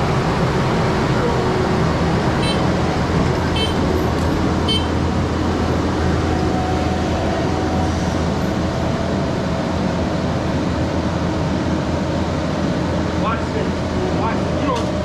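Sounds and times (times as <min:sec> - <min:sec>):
diesel engine and hydraulics running: 0:00.0 - 0:15.0.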